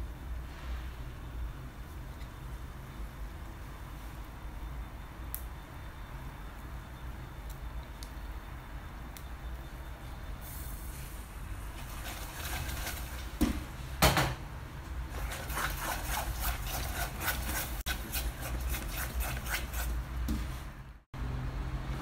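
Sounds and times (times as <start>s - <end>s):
spatula scraping a pot: 11.8s - 13.4s, 15.1s - 20.1s.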